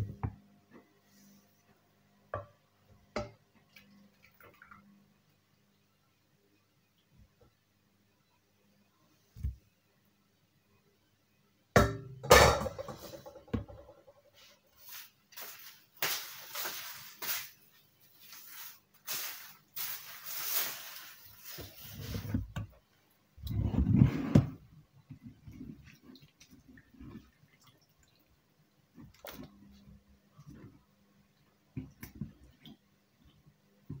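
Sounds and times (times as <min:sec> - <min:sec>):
rustling and scraping: 0:12.6 - 0:22.7, 0:23.4 - 0:26.2.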